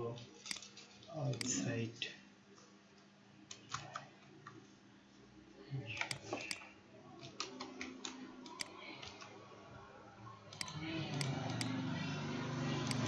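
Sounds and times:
keyboard typing: 3.5s - 4.6s, 5.9s - 9.5s, 10.5s - 13.0s
mouse clicks: 6.0s - 9.2s, 10.5s - 11.8s, 12.8s - 13.0s.

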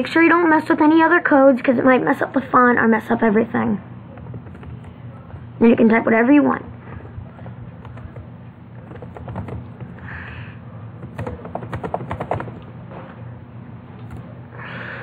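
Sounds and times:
low steady hum: 0.0s - 15.0s
keyboard keys clicking: 4.1s - 5.4s, 7.4s - 10.2s, 11.0s - 12.7s.

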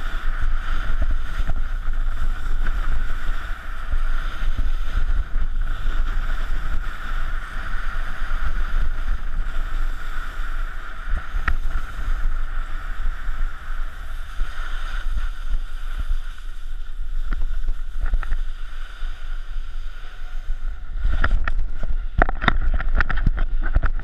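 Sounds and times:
snowboard sliding over snow: 0.0s - 24.0s
wind rumble on microphone: 0.0s - 24.0s
sharp clicks and scrapes: 21.0s - 24.0s.

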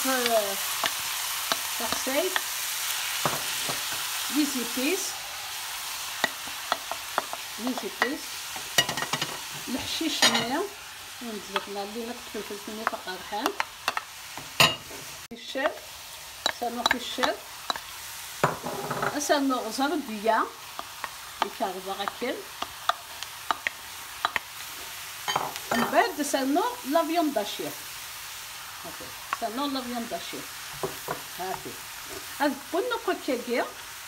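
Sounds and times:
vegetables sizzling in oil: 0.0s - 34.0s
wooden spoon clicking and scraping pan: 0.1s - 2.7s, 6.0s - 10.4s, 11.4s - 12.0s, 12.7s - 14.1s, 15.5s - 17.9s, 20.6s - 26.0s.

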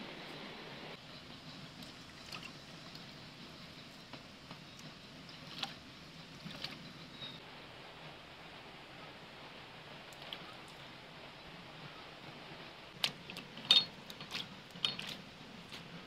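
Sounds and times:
stream water trickling: 1.4s - 7.4s, 10.0s - 11.0s, 12.9s - 16.0s
small splashes and drips: 1.8s - 3.2s, 4.8s - 6.9s, 10.1s - 10.8s, 13.0s - 16.0s.

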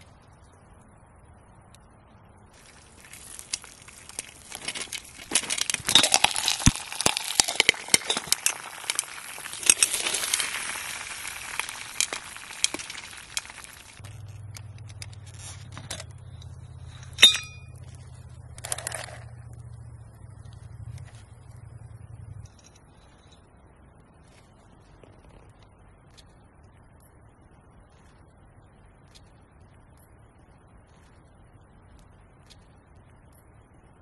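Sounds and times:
popcorn popping in metal pot: 2.7s - 14.1s
sharp metallic clink: 17.0s - 17.8s.

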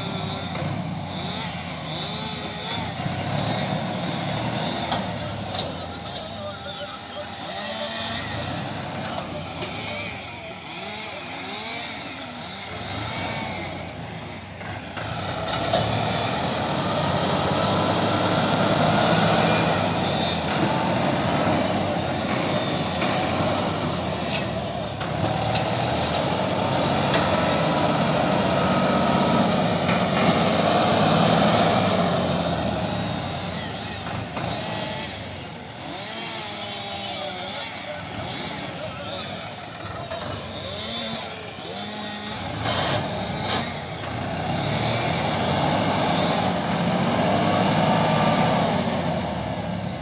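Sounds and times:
tractor engine working hard: 0.0s - 50.0s.

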